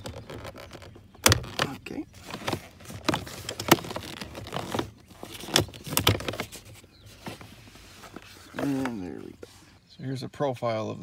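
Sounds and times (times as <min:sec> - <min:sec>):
plastic cover clicking and knocking: 0:00.0 - 0:06.6.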